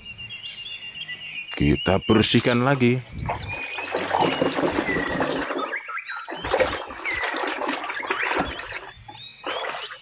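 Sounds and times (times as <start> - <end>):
water splashing and sloshing: 3.2 - 10.0.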